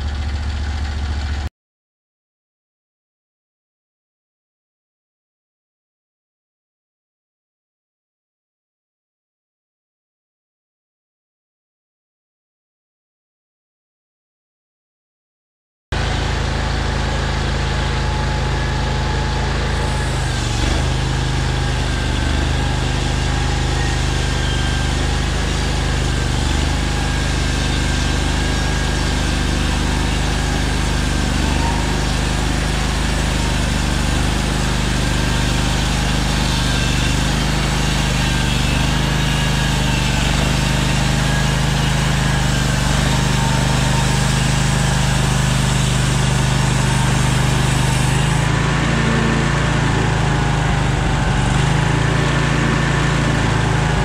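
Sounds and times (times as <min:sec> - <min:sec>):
sawmill engine running: 0:00.0 - 0:01.5, 0:16.0 - 0:54.0.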